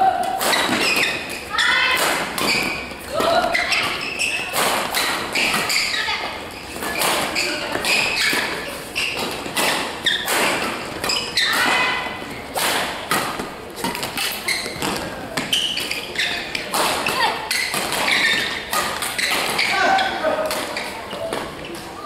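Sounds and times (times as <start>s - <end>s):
rackets striking shuttlecock: 0.2s - 5.9s, 6.7s - 19.8s
shoes thudding and shuffling on court: 12.2s - 21.9s.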